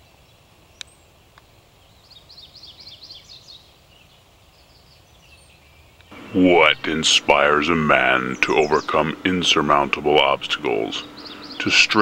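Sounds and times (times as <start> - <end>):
small bird chirping: 0.0 - 12.0
faint low hum: 6.0 - 12.0.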